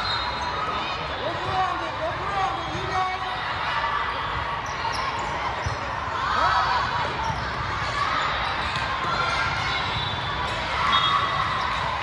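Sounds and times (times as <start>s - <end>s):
volleyballs hitting and bouncing: 6.9s - 10.8s.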